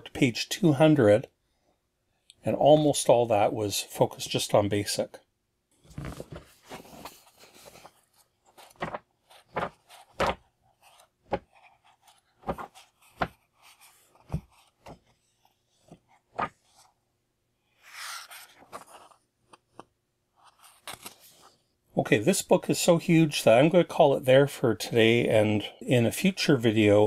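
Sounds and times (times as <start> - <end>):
book pages turning: 5.8 - 17.0, 17.8 - 21.6
riffled pages rustling: 5.8 - 17.0, 17.8 - 21.6.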